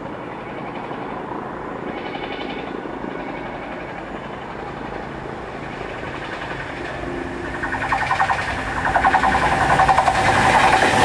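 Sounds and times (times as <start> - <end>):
diesel locomotive engine running: 0.0 - 11.0.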